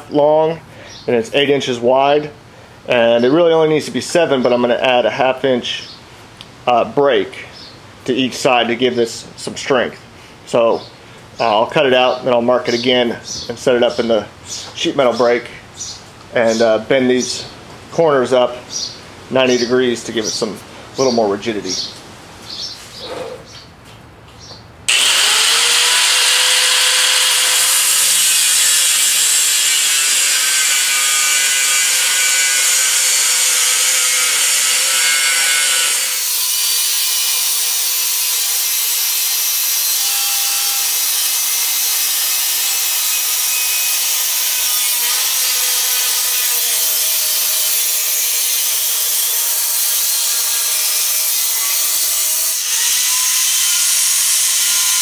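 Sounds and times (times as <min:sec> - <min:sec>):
angle grinder cutting steel sheet: 0:24.9 - 0:55.0.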